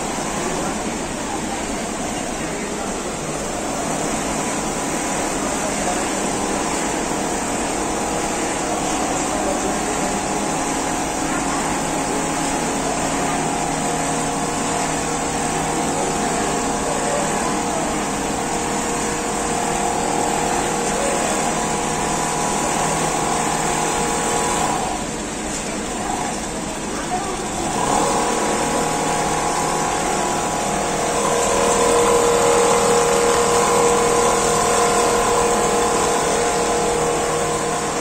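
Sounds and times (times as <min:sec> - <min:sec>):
quilting machine whirring: 0:00.0 - 0:38.0
held motor tones: 0:27.2 - 0:38.0.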